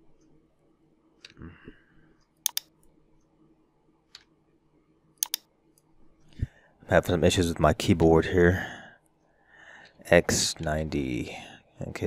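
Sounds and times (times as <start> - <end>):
computer keys clicking: 2.4 - 2.8, 5.2 - 5.5.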